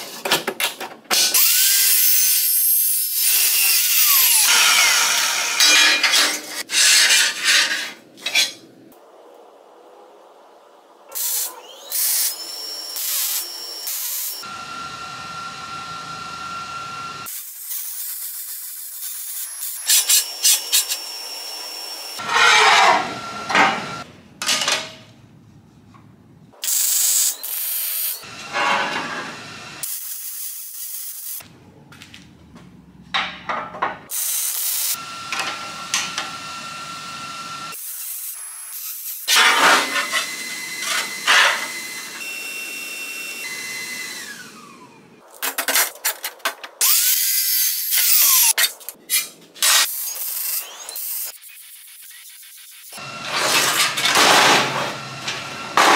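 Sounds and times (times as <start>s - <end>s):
chop saw cutting steel: 1.1s - 8.5s, 17.3s - 24.1s, 26.7s - 30.2s, 34.1s - 36.6s, 37.7s - 42.7s, 52.9s - 55.9s
metal grinding: 4.2s - 8.6s, 22.2s - 24.0s, 28.3s - 29.4s
steel parts clanking: 5.6s - 8.6s
welding crackle and hiss: 11.1s - 14.5s, 17.2s - 22.2s, 26.6s - 28.2s, 29.8s - 31.4s, 34.1s - 35.4s, 37.7s - 40.0s, 46.8s - 53.0s.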